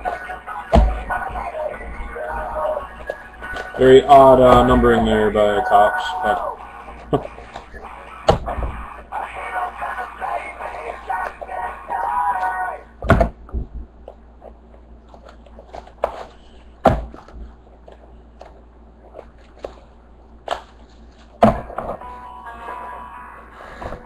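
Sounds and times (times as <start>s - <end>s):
background music: 0.0s - 9.7s, 22.0s - 24.0s
sharp thunks of boxes: 13.0s - 13.5s, 16.8s - 17.4s, 21.4s - 22.0s.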